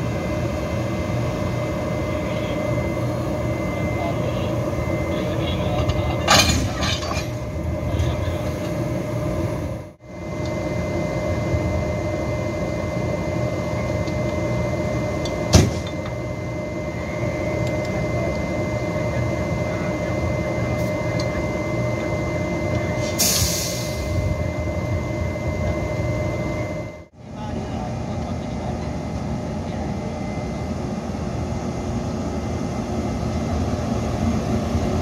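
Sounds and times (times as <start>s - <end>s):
locomotives humming and whining: 0.0s - 35.0s
air hissing: 23.0s - 24.1s.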